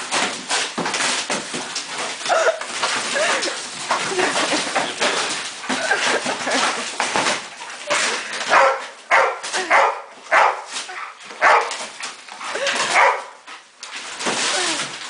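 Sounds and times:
cardboard rustling: 0.0s - 15.0s
dogs barking: 8.4s - 12.0s, 12.6s - 13.4s.

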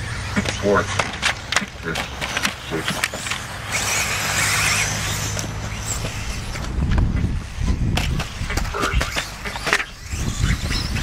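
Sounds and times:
rc car motor whine: 0.0s - 11.0s
low rumble: 5.4s - 8.8s
sharp clicks and ticks: 7.9s - 10.0s.

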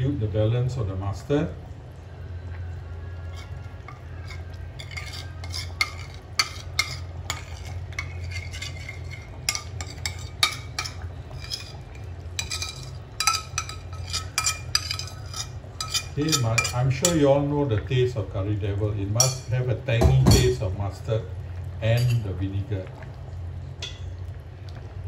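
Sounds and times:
steady low hum: 0.0s - 25.0s
metal spoon scraping ceramic plate: 3.4s - 17.2s.

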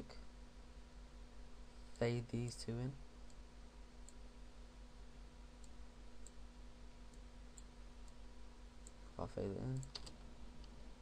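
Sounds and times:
low hum and hiss: 0.0s - 11.0s
faint computer mouse clicks: 9.8s - 10.8s.

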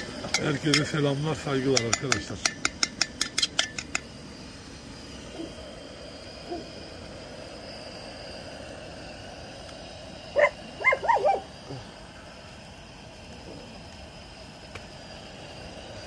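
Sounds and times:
steady hiss: 0.0s - 16.0s
dog barking: 10.4s - 11.5s.

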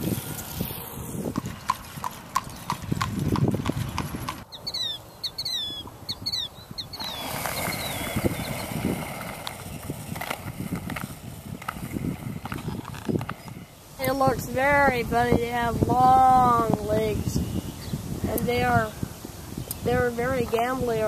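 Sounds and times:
horse hooves on pavement: 0.0s - 4.5s, 7.0s - 14.3s
outdoor noise: 0.0s - 21.0s
bird chirping: 4.4s - 9.0s.

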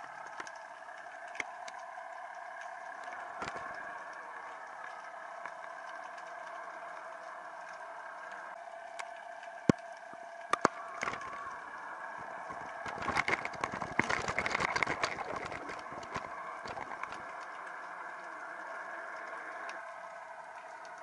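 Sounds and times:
boat engine hum underwater: 0.0s - 21.0s
metal rig clicking over rocks: 12.4s - 17.5s.

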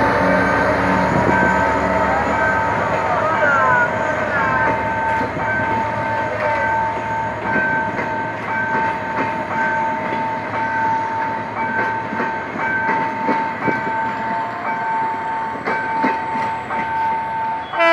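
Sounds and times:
train wheels clicking on rails: 0.0s - 17.8s.

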